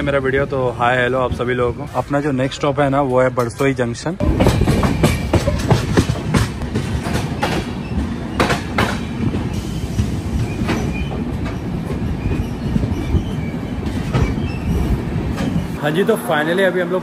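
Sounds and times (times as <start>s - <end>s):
train wheels rumbling on track: 0.0s - 17.0s
wheels clacking over rail joints: 2.3s - 15.8s.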